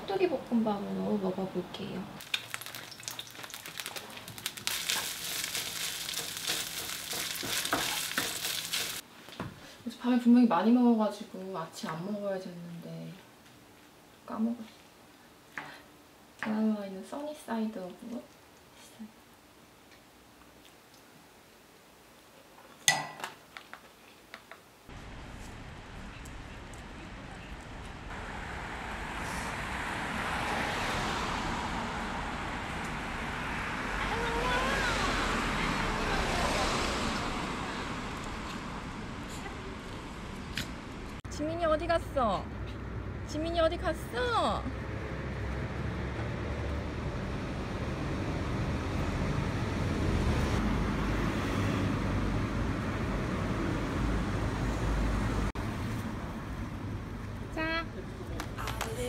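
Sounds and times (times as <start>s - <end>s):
passing cars rumbling: 28.0s - 41.2s, 44.5s - 57.5s
hiss of cars on road: 28.1s - 40.8s.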